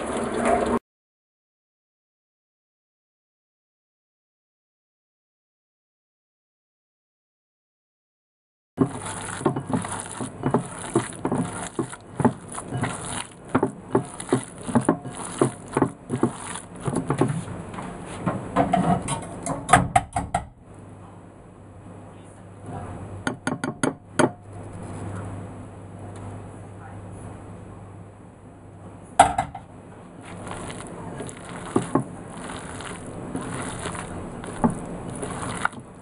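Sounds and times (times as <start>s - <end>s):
wet squelching of kneaded meat: 8.8s - 17.3s, 30.2s - 36.0s.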